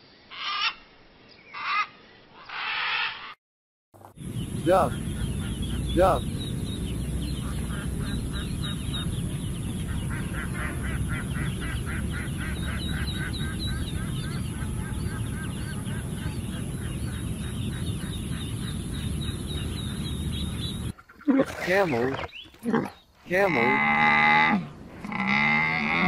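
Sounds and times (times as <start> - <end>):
ducklings peeping: 4.2 - 22.6.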